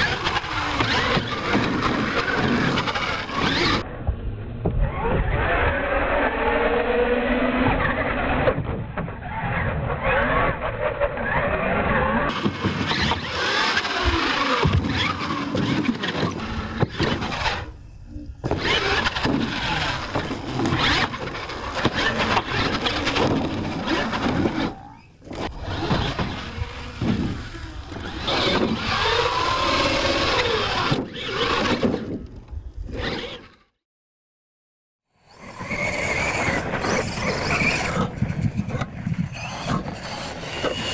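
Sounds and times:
toy truck motor whining: 0:00.0 - 0:03.8, 0:10.0 - 0:33.7, 0:35.2 - 0:40.9
tires scrabbling on dirt: 0:00.0 - 0:33.7, 0:35.2 - 0:40.9.

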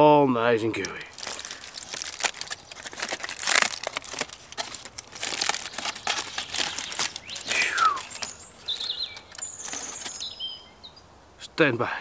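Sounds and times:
aluminium foil crinkling: 0:00.8 - 0:10.3.

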